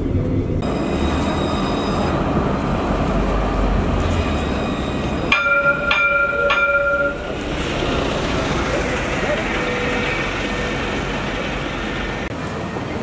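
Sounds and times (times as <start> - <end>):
tram rumbling along street: 0.0 - 13.0
tram warning gong: 0.6 - 11.5.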